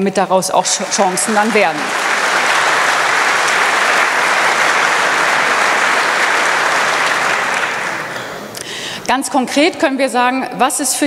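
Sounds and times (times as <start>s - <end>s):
large audience applauding: 0.6s - 8.6s.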